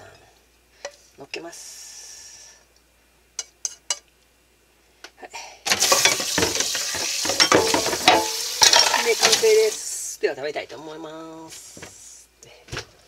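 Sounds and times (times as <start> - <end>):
water running into sink: 5.7 - 9.8
hot pan hissing and crackling: 5.7 - 10.2.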